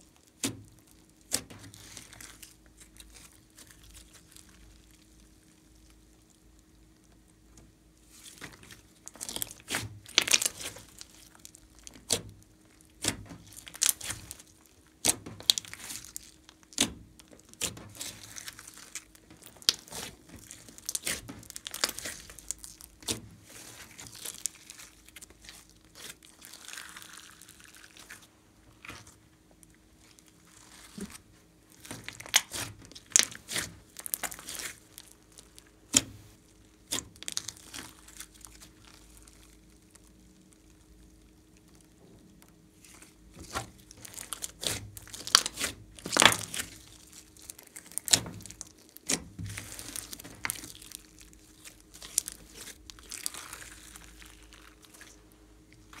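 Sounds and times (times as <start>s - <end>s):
sticky crackles and pops: 0.0s - 56.0s
slime squeezed by hand: 42.8s - 56.0s.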